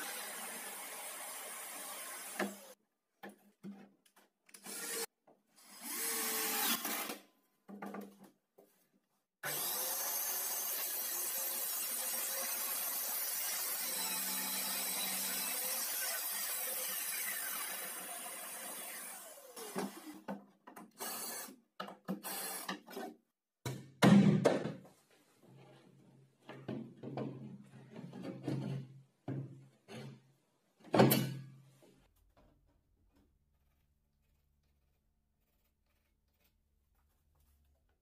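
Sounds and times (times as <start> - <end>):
wooden panels knocking and scraping: 22.9 - 30.2.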